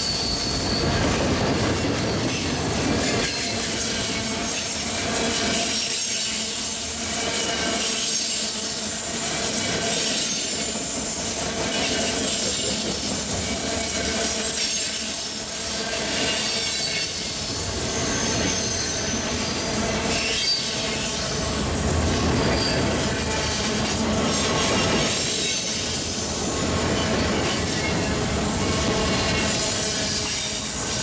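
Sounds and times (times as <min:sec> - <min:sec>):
high-pitched wheel squeals: 0:00.0 - 0:04.4, 0:13.4 - 0:21.4, 0:22.2 - 0:31.0
steel wheels rolling on rail: 0:00.0 - 0:31.0.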